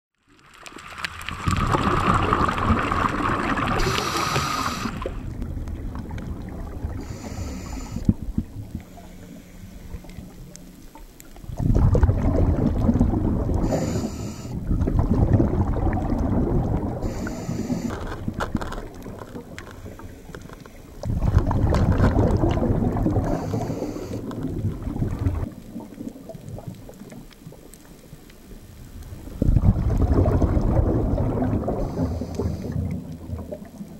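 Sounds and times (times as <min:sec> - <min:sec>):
rushing rumbling water: 0:00.4 - 0:33.9.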